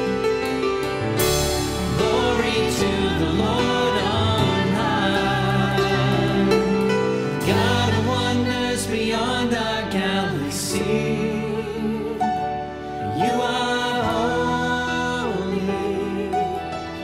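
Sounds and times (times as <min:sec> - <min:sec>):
drums: 0:00.0 - 0:09.0
piano: 0:00.0 - 0:17.0
voices singing worship song: 0:01.2 - 0:17.0.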